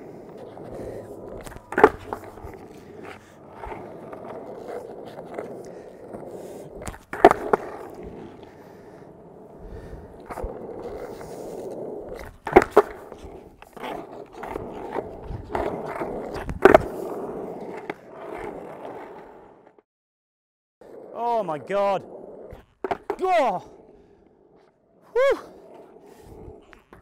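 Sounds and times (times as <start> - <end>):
skateboard clacking on ground: 0.0 - 9.2, 10.0 - 19.3, 22.0 - 23.6
skateboard wheels rolling on concrete: 0.0 - 19.8, 20.8 - 27.0.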